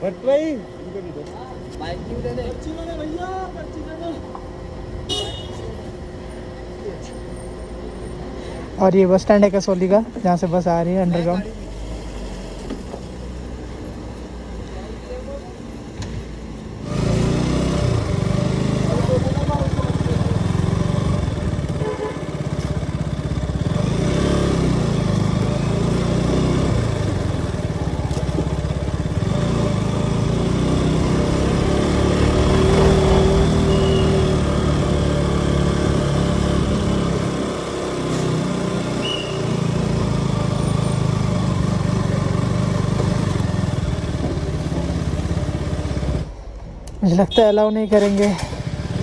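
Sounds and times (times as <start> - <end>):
motorcycle engine running: 16.8 - 46.4, 47.8 - 49.0.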